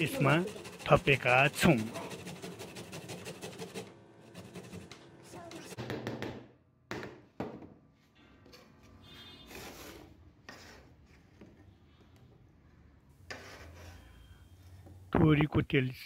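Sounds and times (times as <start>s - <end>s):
ginger grated on metal grater: 0.0s - 5.7s
cleaver scraping cutting board: 0.0s - 5.8s, 13.3s - 14.2s.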